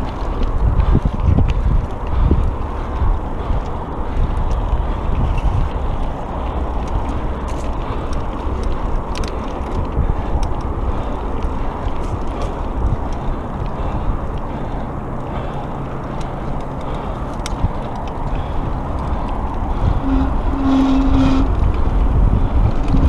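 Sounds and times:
bike clicks and rattles: 0.0s - 23.0s
bike tyres rolling over dirt: 0.0s - 23.0s.

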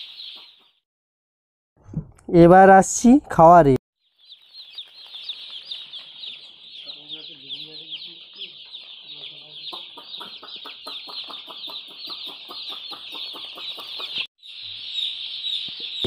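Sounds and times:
chicks peeping: 0.0s - 0.8s, 4.0s - 16.0s.

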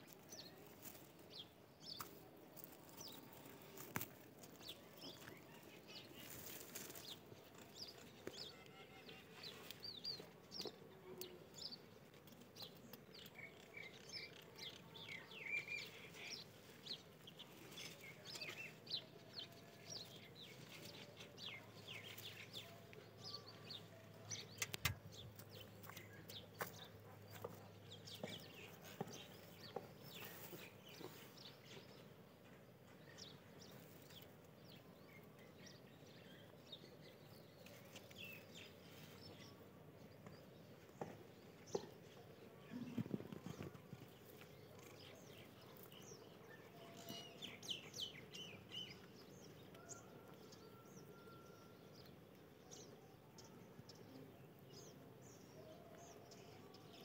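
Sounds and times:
faint bird chirping: 0.0s - 57.0s
soft rustling of feeding rabbits: 0.0s - 57.0s.

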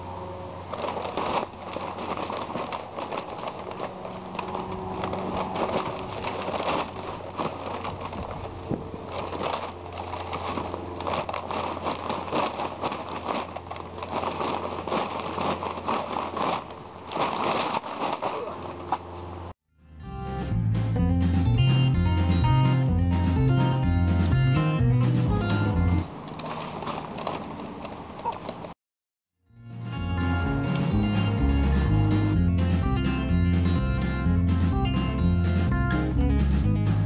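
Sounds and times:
branches crackling underfoot: 0.5s - 19.4s, 26.1s - 28.8s
paper bag crinkling: 0.6s - 19.1s
low steady hum: 29.5s - 37.0s.

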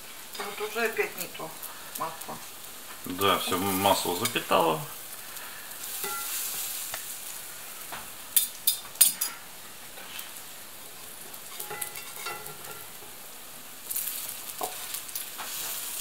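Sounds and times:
pancakes sizzling in oil: 0.0s - 16.0s.

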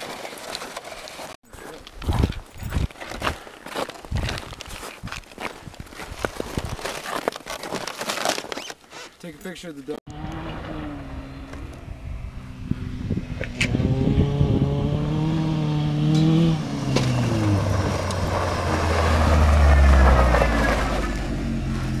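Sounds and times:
tyre noise on dirt: 0.0s - 8.8s, 13.5s - 22.0s.

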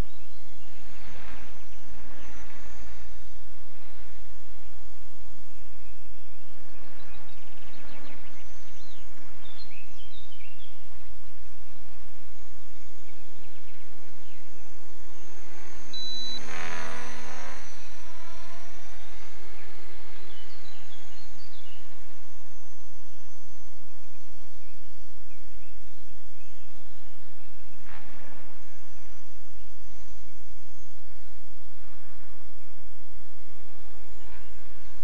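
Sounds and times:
wind rumble on microphone: 0.0s - 35.0s
bird chirps: 5.8s - 11.1s, 12.4s - 31.0s.

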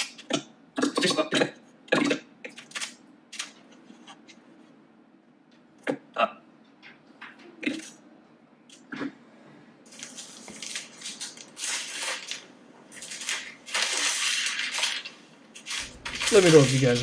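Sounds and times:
rustling handling noise: 9.9s - 17.0s.

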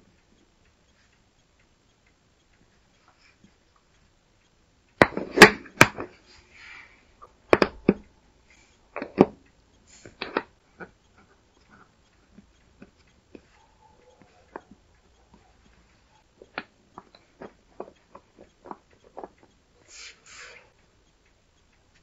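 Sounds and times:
light clicks and taps: 0.0s - 22.0s
battery cells knocking on wood: 7.5s - 8.0s.

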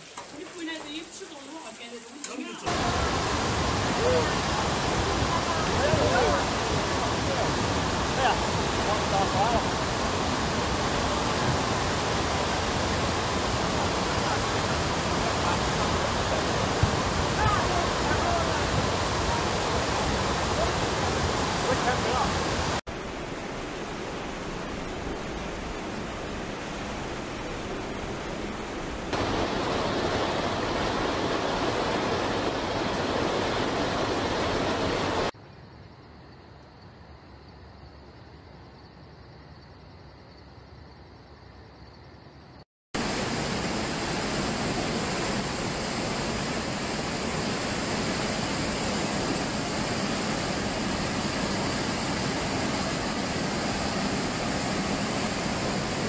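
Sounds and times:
floodwater rushing in river: 0.0s - 35.4s, 43.0s - 56.0s.

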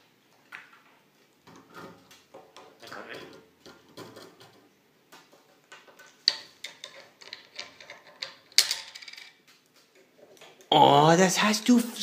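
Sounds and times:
parrot clattering plastic toys: 1.5s - 10.6s.

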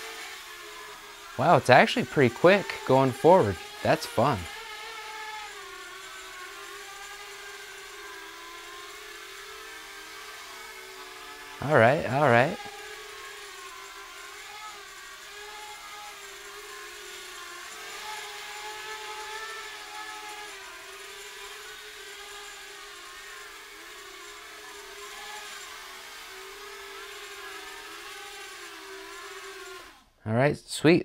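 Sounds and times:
drone propellers whining: 0.0s - 16.7s.

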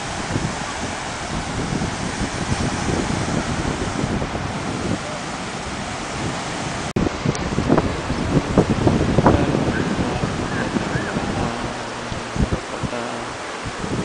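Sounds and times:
surf washing on beach: 0.0s - 14.0s
wind buffeting microphone: 0.0s - 14.0s.

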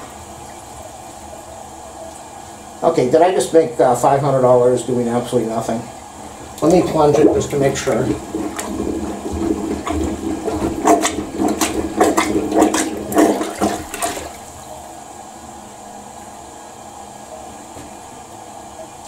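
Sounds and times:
water splashing in toilet bowl: 6.4s - 14.6s.

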